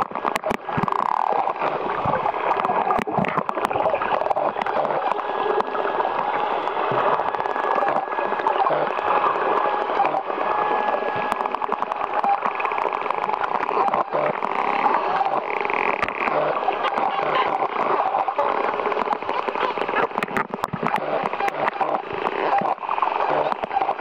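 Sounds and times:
dolphins whistling underwater: 0.0s - 24.0s
dolphin clicks: 6.9s - 24.0s.

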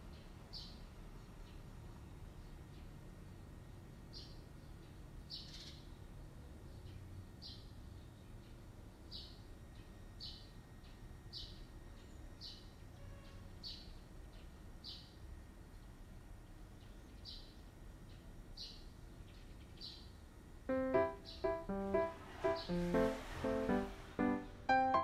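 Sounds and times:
bird chirping: 0.0s - 1.7s, 4.1s - 6.0s, 6.6s - 15.2s, 16.7s - 25.0s.

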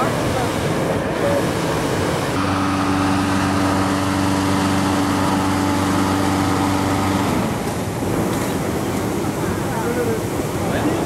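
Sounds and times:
broad rushing roar: 0.0s - 11.0s
engine running steadily: 0.0s - 11.0s.

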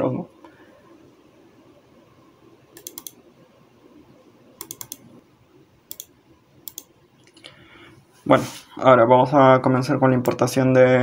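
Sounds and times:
keyboard keys clicking: 2.8s - 3.2s, 4.6s - 5.0s.

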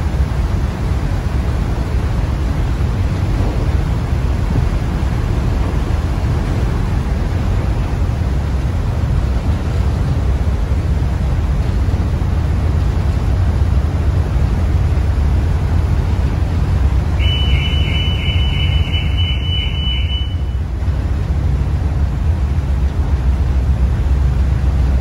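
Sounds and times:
ferry engine rumble: 0.0s - 25.0s
car alarm pulsing beep: 17.2s - 20.6s.

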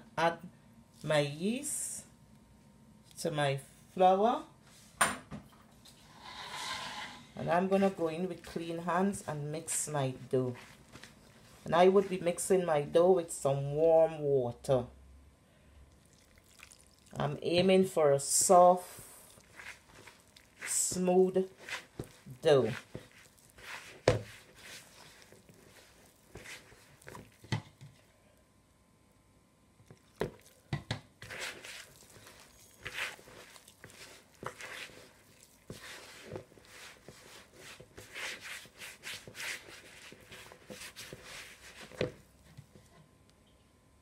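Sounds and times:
dough squishing and scraping: 5.9s - 13.6s, 16.0s - 28.1s, 29.8s - 43.0s.

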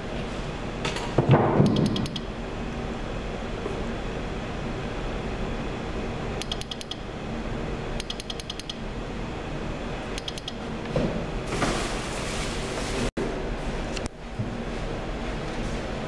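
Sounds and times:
steady low hum: 0.0s - 16.0s
rain sensor rapid ticks: 6.4s - 7.0s.

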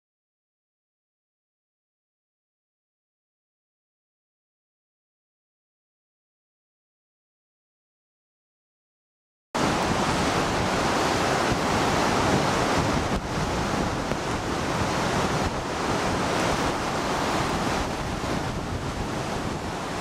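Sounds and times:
gusty wind buffeting microphone: 9.6s - 20.0s
waves breaking on rocks: 9.6s - 20.0s.

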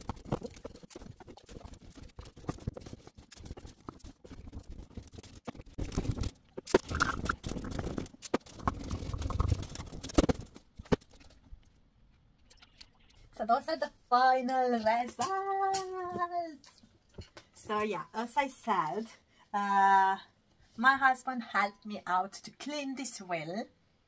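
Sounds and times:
cloth scrubbing plastic: 0.0s - 11.4s.

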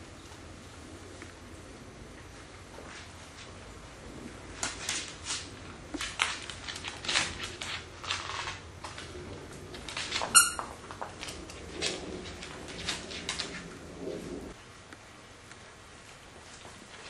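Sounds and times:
dog toy squeak: 10.3s - 10.7s.

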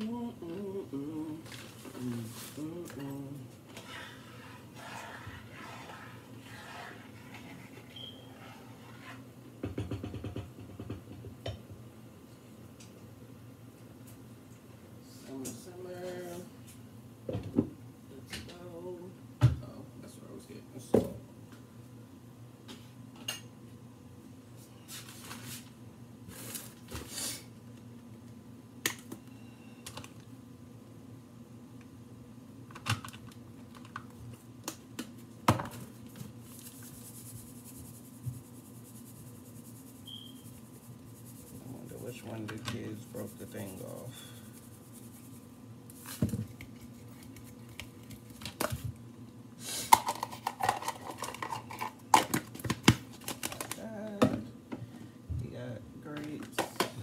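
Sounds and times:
steady low hum: 0.0s - 9.7s, 25.6s - 52.2s.

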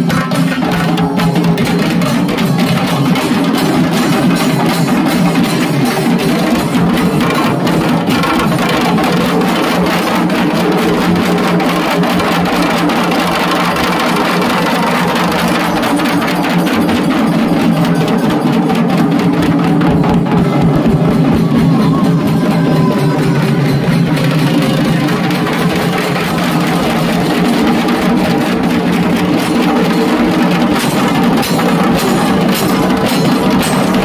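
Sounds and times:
fast loud drumming: 0.0s - 34.0s.

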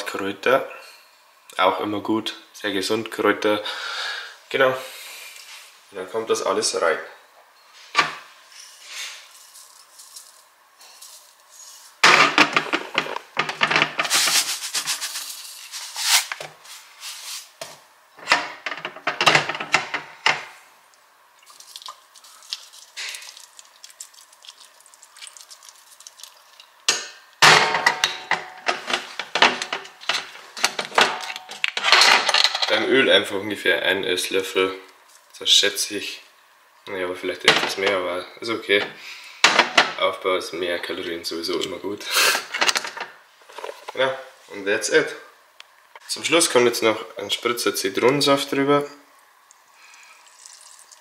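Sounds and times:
dry rattling of shakers: 8.7s - 12.0s, 14.0s - 16.2s.

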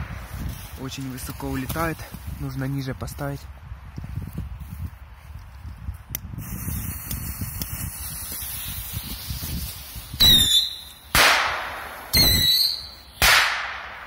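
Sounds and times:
loud firework bangs: 10.2s - 14.0s
whistling rockets launching: 10.2s - 14.0s.

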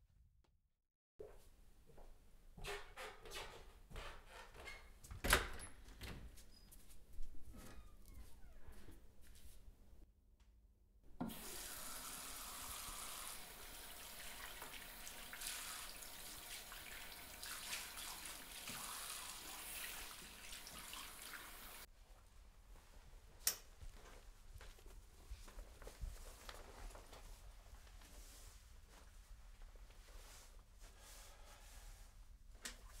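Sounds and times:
water running: 11.2s - 21.9s.

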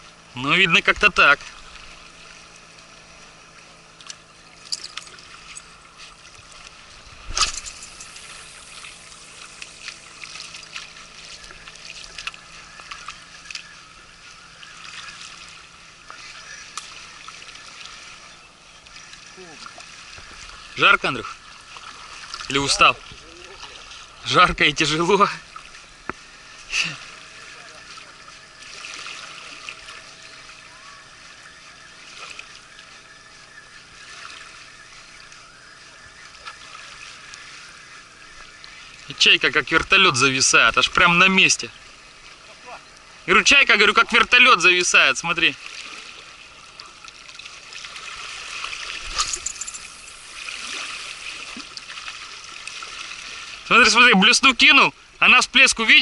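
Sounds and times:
river water lapping at shore: 0.0s - 56.0s
small splashes and clicks: 1.1s - 18.2s, 18.8s - 24.1s, 26.9s - 33.0s, 33.8s - 37.7s, 45.5s - 53.6s.

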